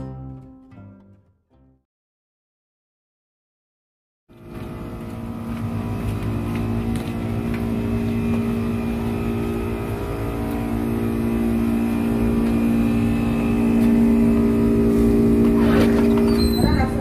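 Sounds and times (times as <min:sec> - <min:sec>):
air-conditioner units humming: 0:04.3 - 0:17.0.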